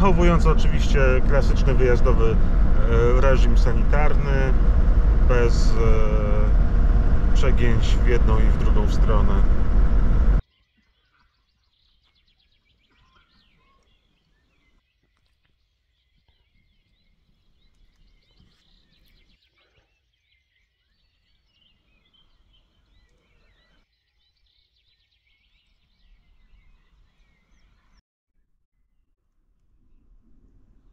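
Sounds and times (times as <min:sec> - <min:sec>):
low background rumble: 0:00.0 - 0:10.4
faint birdsong chirps: 0:00.0 - 0:28.9.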